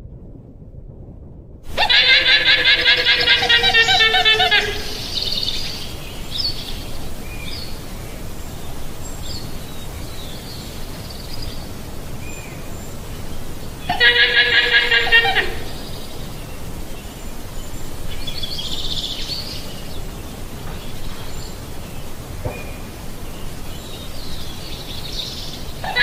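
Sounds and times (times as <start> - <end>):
llama pulsing call: 1.7 - 7.2, 13.7 - 15.8, 25.8 - 26.0
small birds chirping: 1.7 - 26.0.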